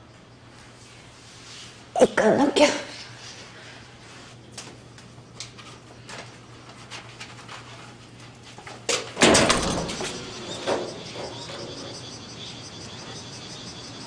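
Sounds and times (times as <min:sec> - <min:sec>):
door banging: 0:09.2 - 0:11.9.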